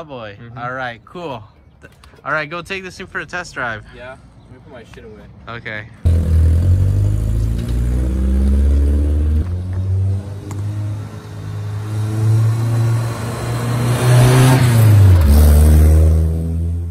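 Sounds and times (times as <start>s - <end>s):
car engine passing by: 6.1s - 16.9s.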